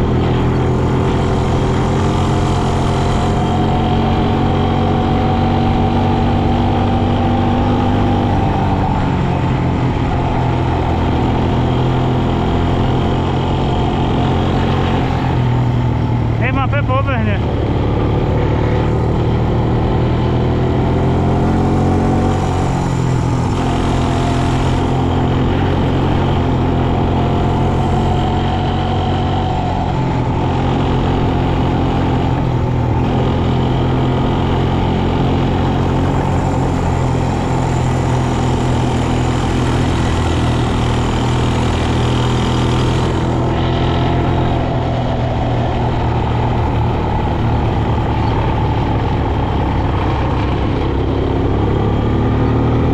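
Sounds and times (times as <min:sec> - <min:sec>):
quad bike engine running: 0:00.0 - 0:52.9.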